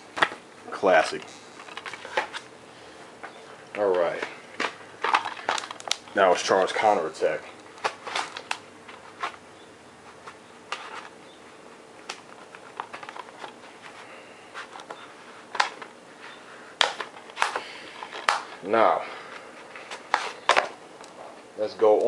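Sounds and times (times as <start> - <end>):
hands handling objects clicking: 3.2 - 6.2, 16.8 - 18.7.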